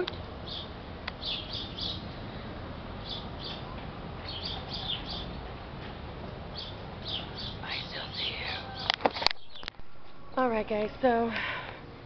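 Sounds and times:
small birds chirping: 0.0s - 5.5s, 6.5s - 9.8s.

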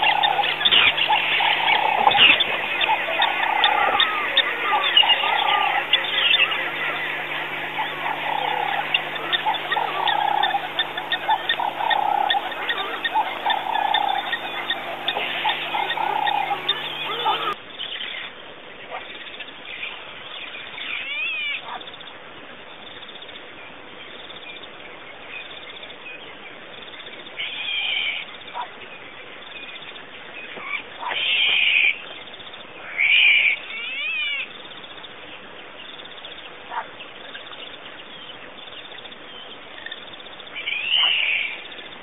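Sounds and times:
animal high-pitched calls: 0.0s - 17.6s
background hiss: 0.0s - 18.7s.

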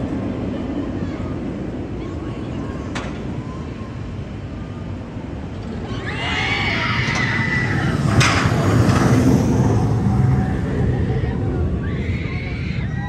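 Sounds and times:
coaster train rumbling on track: 0.0s - 13.0s
riders screaming: 5.8s - 9.0s, 10.0s - 13.0s.

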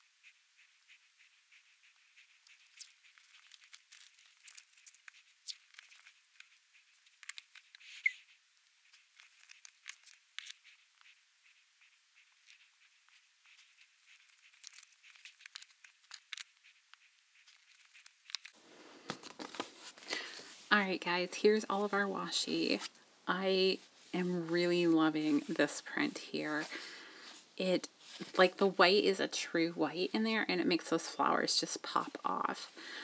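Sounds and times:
tape crackling and ticking: 0.9s - 20.5s.

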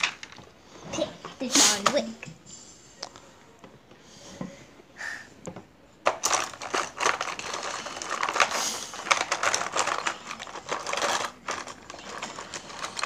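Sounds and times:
plastic markers clattering: 0.0s - 0.5s, 6.0s - 13.0s.

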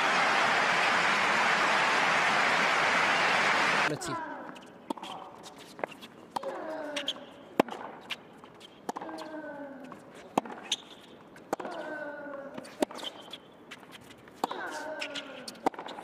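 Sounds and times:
tennis ball bouncing: 8.9s - 9.4s, 10.4s - 10.8s, 14.4s - 16.0s.

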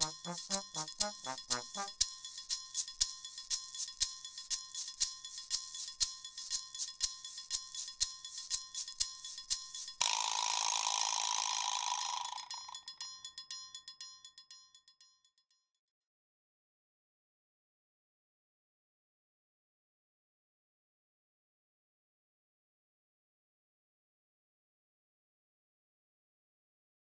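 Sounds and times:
jingling percussion beat: 0.0s - 15.5s.

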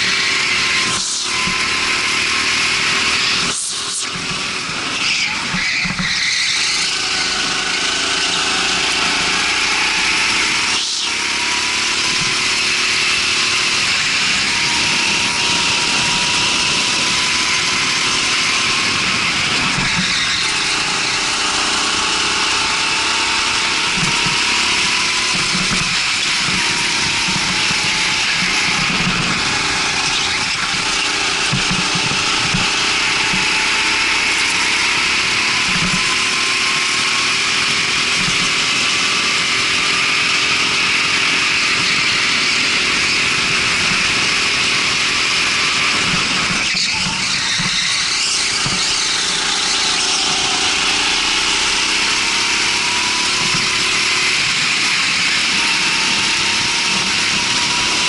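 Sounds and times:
go-kart engine running: 0.0s - 58.0s.

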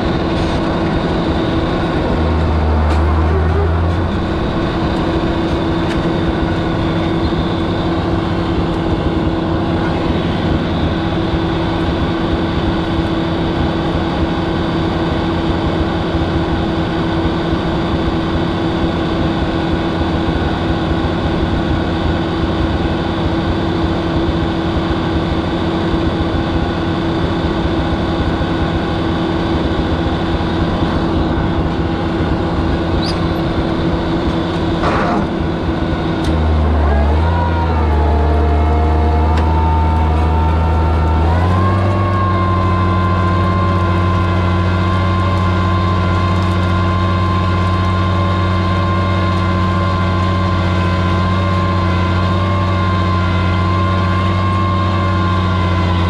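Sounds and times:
tractor engine running: 0.0s - 56.0s.

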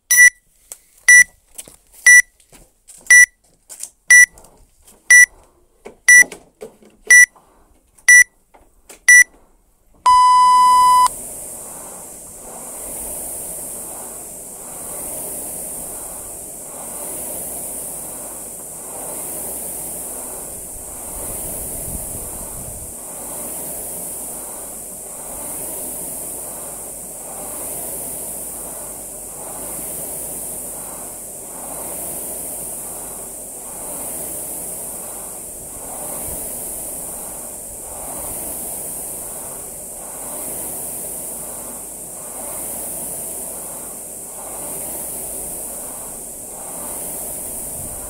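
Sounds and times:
long low start beep: 0.0s - 0.4s, 2.1s - 2.3s, 3.1s - 3.3s, 4.1s - 4.3s, 8.1s - 8.3s, 9.1s - 9.3s, 10.1s - 11.1s
short high timer beeps: 0.0s - 0.4s, 2.1s - 2.3s, 3.1s - 3.3s, 4.1s - 4.3s, 8.1s - 8.3s, 9.1s - 9.3s, 10.1s - 11.1s
rowing machine flywheel whooshing: 7.1s - 48.0s.

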